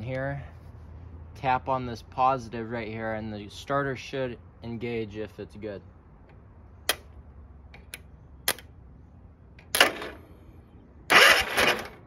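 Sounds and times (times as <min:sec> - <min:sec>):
starter motor engaging: 0:11.1 - 0:12.0.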